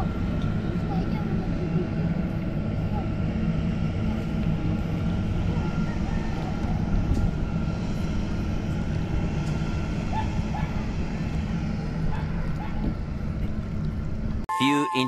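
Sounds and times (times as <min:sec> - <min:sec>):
low motor drone: 0:00.0 - 0:14.4
short high chirps: 0:14.5 - 0:15.0.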